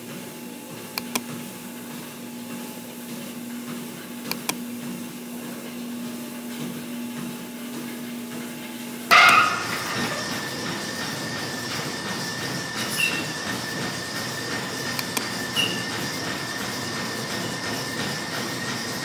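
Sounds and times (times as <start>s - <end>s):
treadmill belt noise: 0.0s - 19.0s
treadmill motor hum: 0.0s - 19.0s
loud high-toned sound: 9.1s - 14.8s.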